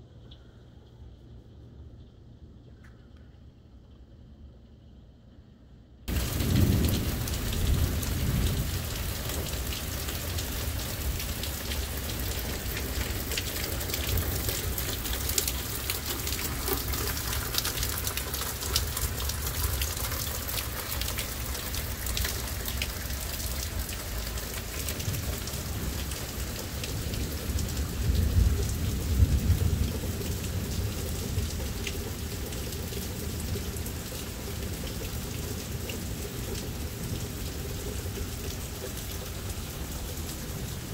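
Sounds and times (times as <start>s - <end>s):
low thunder rumbling: 6.1s - 32.3s
heavy rain pouring: 6.1s - 40.9s.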